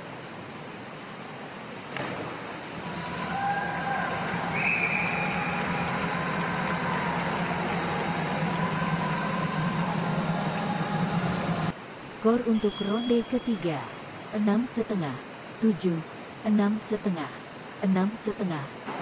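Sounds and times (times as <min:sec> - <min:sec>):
pool hall rushing noise: 0:01.9 - 0:12.0.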